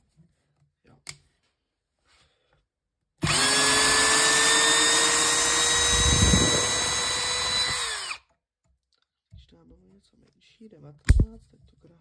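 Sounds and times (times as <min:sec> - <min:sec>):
cordless drill driving screw: 0:03.2 - 0:08.3.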